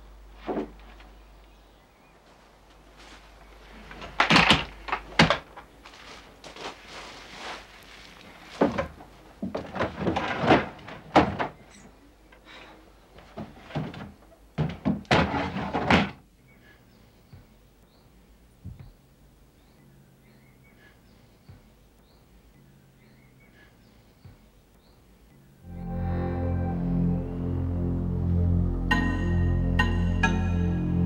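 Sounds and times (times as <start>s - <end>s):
rummaging thunks and knocks: 8.5s - 11.8s, 13.2s - 16.2s.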